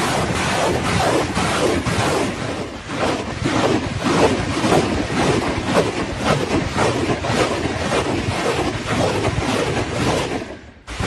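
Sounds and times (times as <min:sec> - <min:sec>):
constant rushing noise: 0:00.0 - 0:11.0
rockets launching with blast and whoosh: 0:00.0 - 0:11.0.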